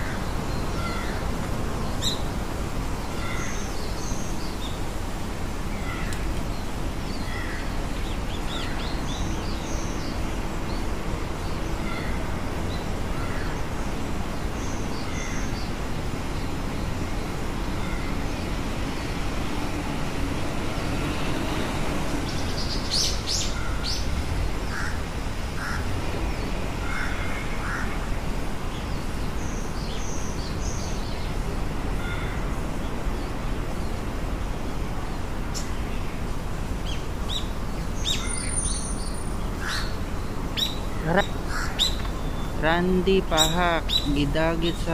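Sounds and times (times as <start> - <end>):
low background noise: 0.0 - 44.9
crow cawing: 25.6 - 25.8, 41.5 - 41.8
small birds chirping: 36.8 - 44.9.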